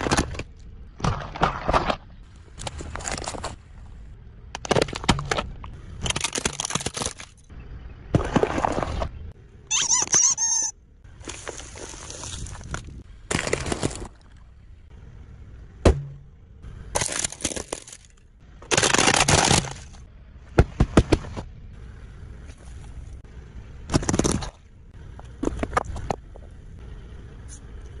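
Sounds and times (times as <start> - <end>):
plastic toy breaking: 6.0 - 7.4, 16.9 - 20.0.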